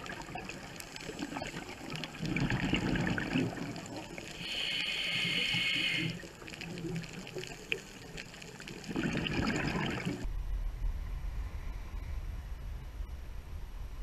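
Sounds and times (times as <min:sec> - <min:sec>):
exhaled bubbles rushing: 0:00.0 - 0:04.6, 0:05.3 - 0:10.3
scuba regulator hiss: 0:04.4 - 0:06.2
wind rumble on microphone: 0:10.2 - 0:14.0.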